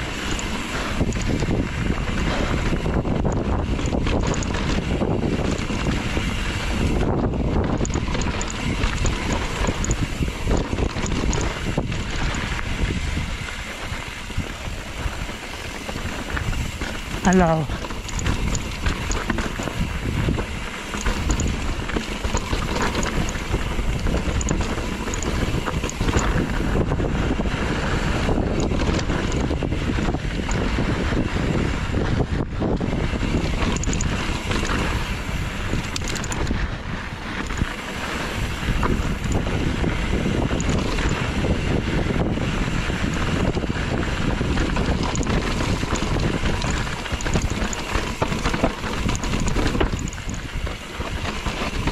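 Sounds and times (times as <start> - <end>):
bike ride rumble: 0.0 - 51.9
wind buffeting microphone: 0.0 - 51.9.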